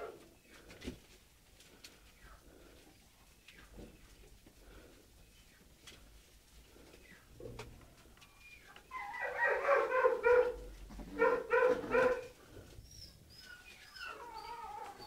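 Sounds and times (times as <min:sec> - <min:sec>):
puppies whining and yelping: 0:08.4 - 0:10.6, 0:11.2 - 0:15.0.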